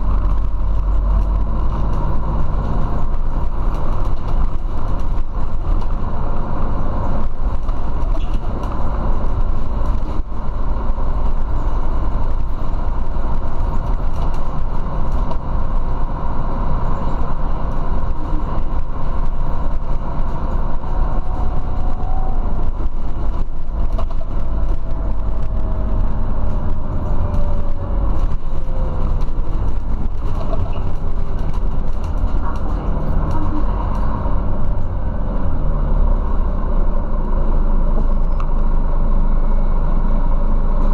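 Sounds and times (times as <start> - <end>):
bus engine and road rumble: 0.0 - 40.9
faint whine: 36.6 - 40.9.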